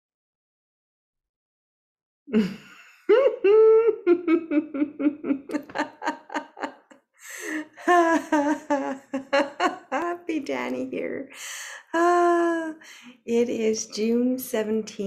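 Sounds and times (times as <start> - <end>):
woman laughing: 2.3 - 10.7, 11.9 - 12.8.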